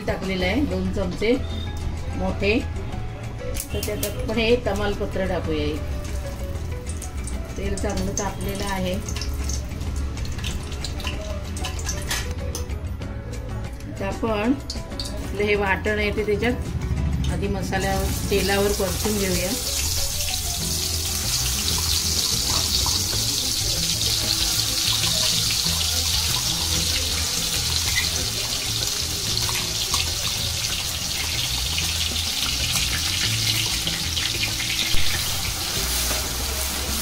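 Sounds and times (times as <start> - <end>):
paste sizzling in hot oil: 18.0 - 37.0.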